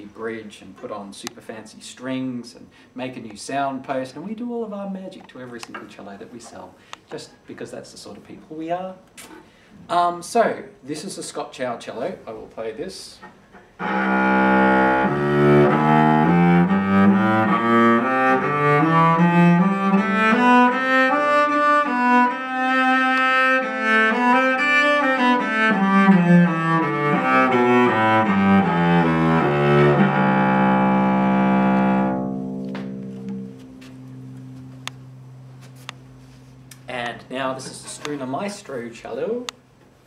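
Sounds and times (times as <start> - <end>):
bowed cello melody: 13.7 - 38.3.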